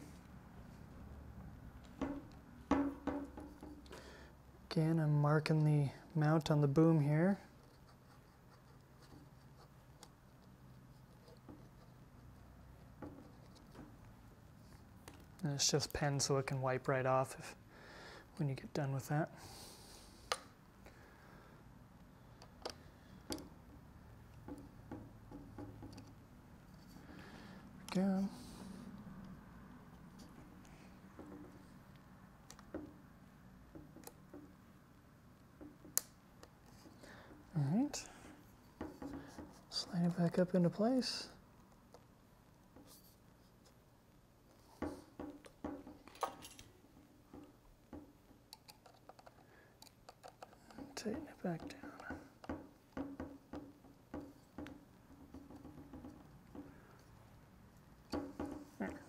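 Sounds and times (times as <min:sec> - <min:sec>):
faint clicks and knocks of handling: 0:07.6 - 0:16.0, 0:22.0 - 0:28.0, 0:33.7 - 0:34.6, 0:35.4 - 0:39.8, 0:41.6 - 0:43.8, 0:44.4 - 0:57.4
small parts clicking by hand: 0:48.4 - 0:53.3.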